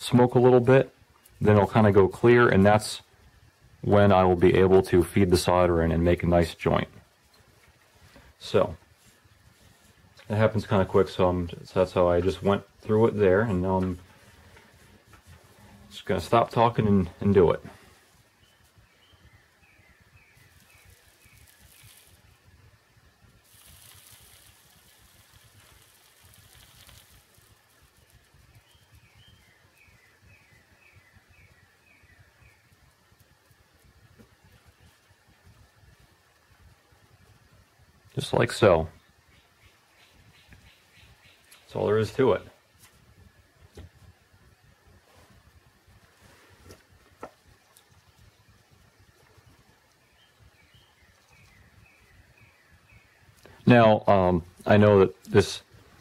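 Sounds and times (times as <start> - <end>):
soft hiss: 0.0 - 56.0
bird chirping: 18.3 - 22.5, 23.6 - 33.0, 38.6 - 42.4, 47.5 - 54.3.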